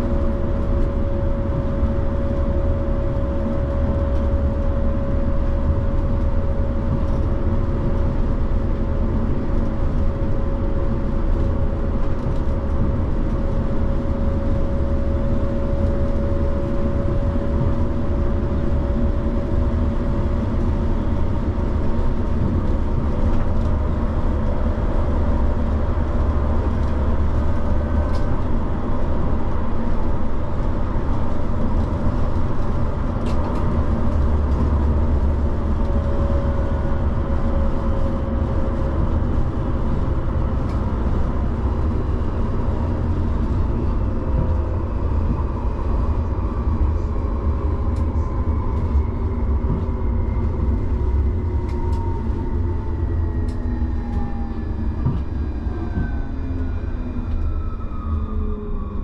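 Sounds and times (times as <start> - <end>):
tram wheels rumbling on rails: 0.0 - 59.0.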